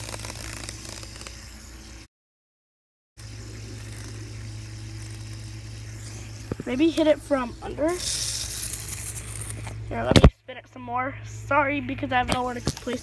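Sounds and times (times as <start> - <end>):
fidget spinner whirring: 0.0 - 2.1, 3.2 - 10.3, 11.6 - 13.0
constant low hum: 3.2 - 13.0.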